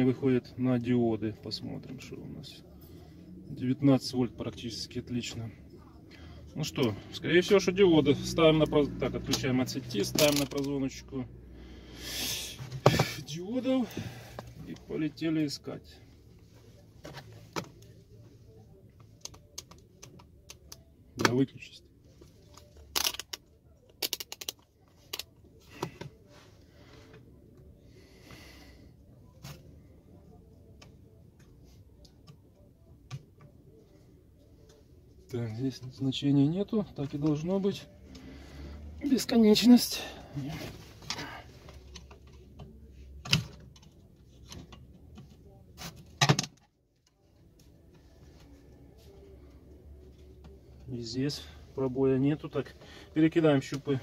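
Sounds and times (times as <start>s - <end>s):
multimeter probes clicking: 22.9s - 25.3s.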